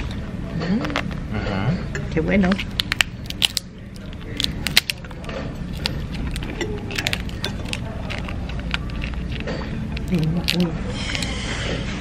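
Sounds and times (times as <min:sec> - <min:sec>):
low background hum: 0:00.0 - 0:12.0
crab shell cracking: 0:02.5 - 0:11.3.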